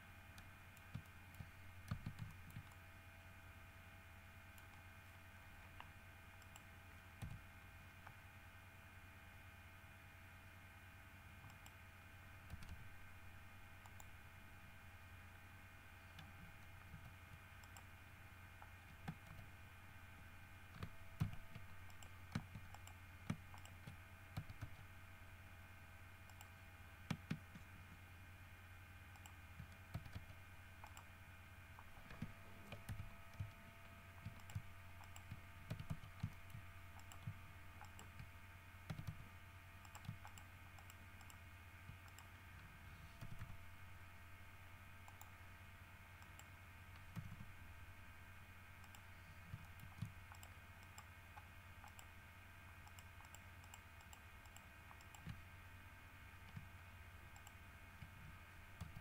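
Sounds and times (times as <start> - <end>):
low steady hum: 0.0 - 59.0
keyboard and mouse clicks: 0.4 - 2.8, 4.5 - 4.9, 5.6 - 8.2, 11.4 - 11.8, 12.4 - 12.9, 13.8 - 14.2, 16.1 - 17.9, 18.6 - 19.5, 20.7 - 24.9, 26.2 - 28.0, 29.1 - 31.1, 31.8 - 33.6, 34.2 - 39.2, 39.8 - 43.6, 45.0 - 45.4, 46.2 - 47.5, 48.8 - 52.2, 52.8 - 55.4, 56.4 - 56.7, 57.3 - 59.0.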